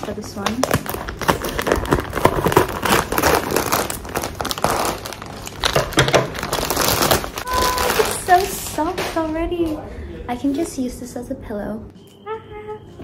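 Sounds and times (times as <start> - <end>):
scissors cutting plastic: 0.0 - 8.4
plastic bag crinkling: 0.0 - 9.0.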